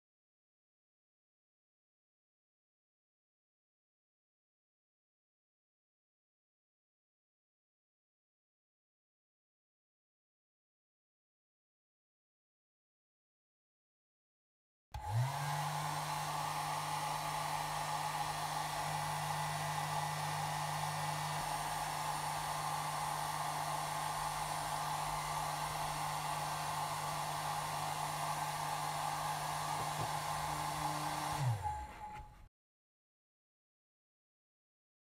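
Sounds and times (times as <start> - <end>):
hair dryer blowing: 15.0 - 32.5.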